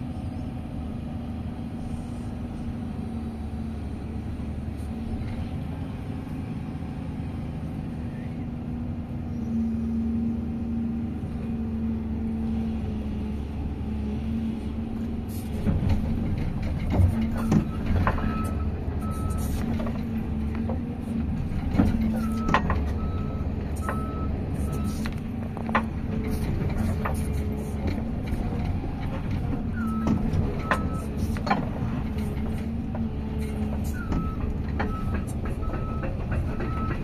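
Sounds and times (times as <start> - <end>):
diesel engine running: 0.0 - 37.0
machine clanks and rattles: 15.5 - 37.0
back-up alarm beeping: 22.2 - 25.0, 29.8 - 31.1, 34.0 - 37.0.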